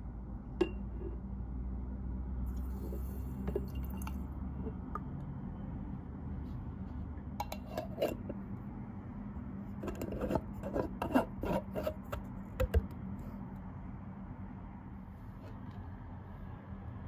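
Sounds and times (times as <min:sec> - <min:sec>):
low steady hum: 0:00.0 - 0:17.0
jar lid clicking and scraping: 0:07.4 - 0:08.4, 0:09.8 - 0:12.9.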